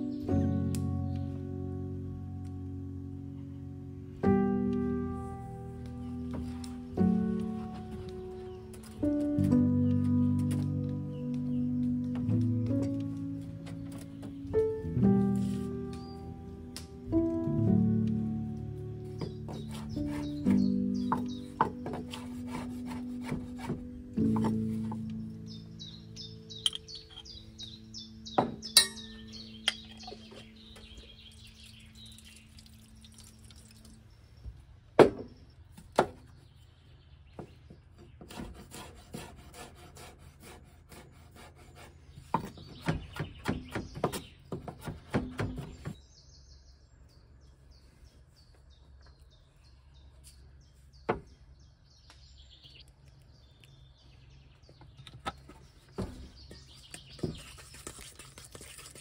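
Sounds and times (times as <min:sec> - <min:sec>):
birds singing: 0:00.0 - 0:59.0
knife chopping on wooden board: 0:19.2 - 0:24.8
utensils knocking on steel bowl: 0:28.7 - 0:30.0.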